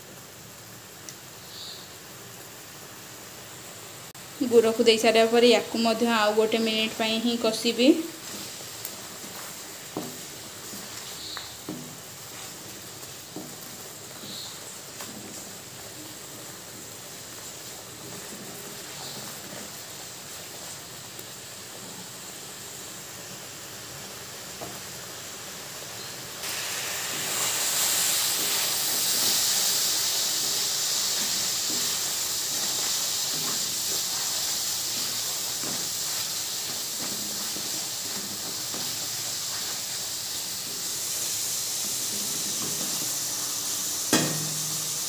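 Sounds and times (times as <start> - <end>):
sauce sizzling and bubbling in a pan: 0.0 - 45.0
sharp knock: 44.1 - 45.0.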